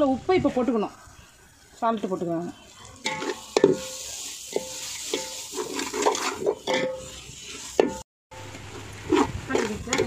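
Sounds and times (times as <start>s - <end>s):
food sizzling in a pot: 0.0s - 10.0s
metal spoon scraping a metal pot: 3.0s - 8.0s.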